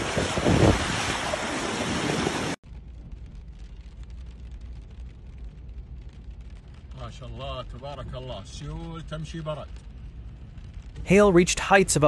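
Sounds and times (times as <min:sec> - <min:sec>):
wind and floodwater rushing: 0:00.0 - 0:02.6, 0:08.1 - 0:12.0
low rumble inside car cabin: 0:02.7 - 0:12.0.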